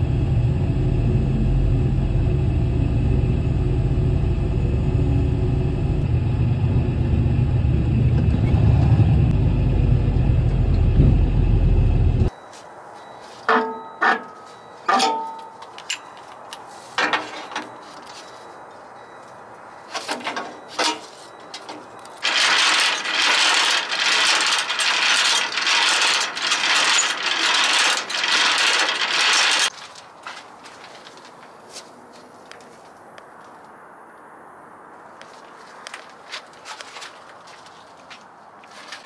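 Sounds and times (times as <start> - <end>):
metal couplings clanking: 13.4 - 18.2, 19.9 - 30.0
hand crank grinding: 22.2 - 29.8.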